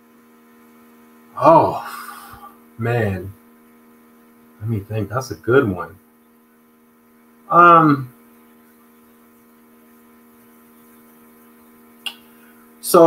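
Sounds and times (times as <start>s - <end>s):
faint electrical hum: 0.0s - 13.0s
man's hesitant vocal sound: 1.4s - 2.6s.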